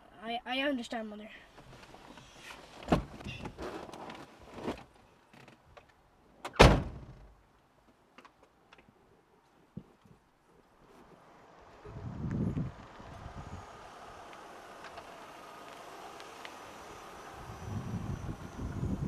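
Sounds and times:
rustling of person getting out: 1.5 - 5.9
car door slamming shut: 6.5 - 7.3.

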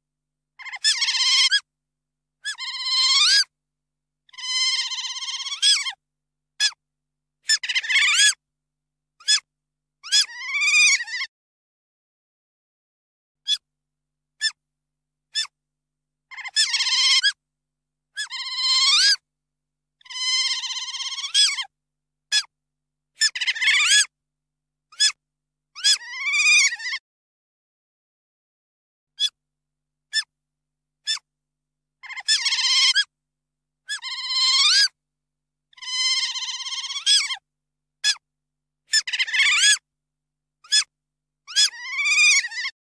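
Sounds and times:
otter chirping squeals: 4.4 - 6.0, 20.1 - 21.7, 35.8 - 37.4.

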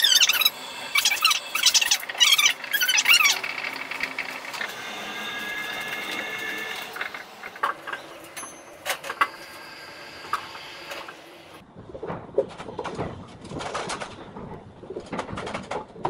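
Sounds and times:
high steady tones: 0.0 - 11.6.

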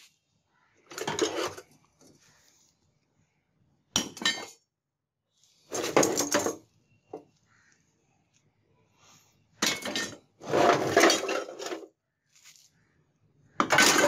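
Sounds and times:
scrap metal clattering: 9.6 - 11.8, 13.6 - 14.0.

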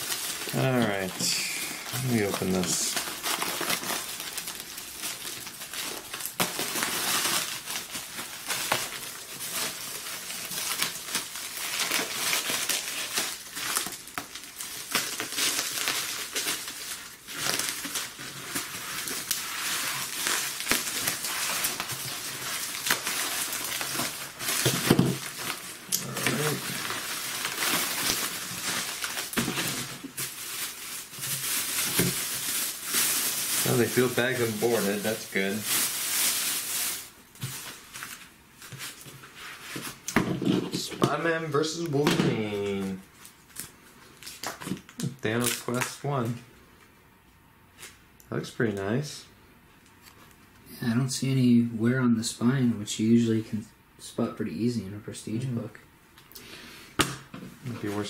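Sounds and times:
plastic bag rustling: 0.0 - 46.4, 57.5 - 58.0
bubble wrap crinkling: 0.0 - 46.9.

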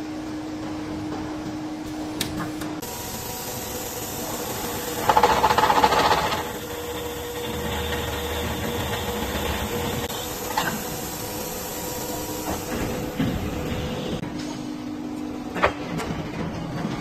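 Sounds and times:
drilling machine hum: 1.9 - 14.2.

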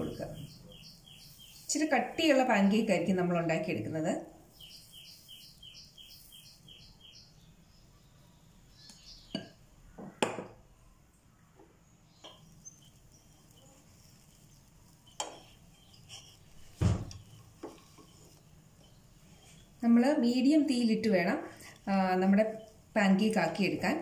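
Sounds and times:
bird chirping: 0.0 - 2.0, 4.5 - 10.2, 11.2 - 19.7.

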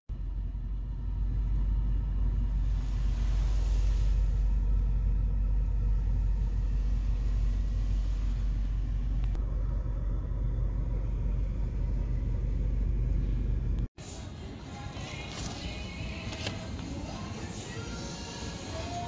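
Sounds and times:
car engine rumbling from inside: 0.1 - 14.0.

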